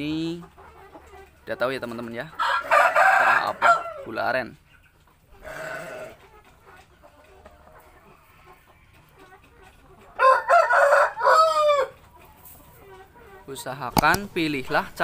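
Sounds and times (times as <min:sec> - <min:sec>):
rooster crowing: 0:02.4 - 0:04.0, 0:10.2 - 0:12.0.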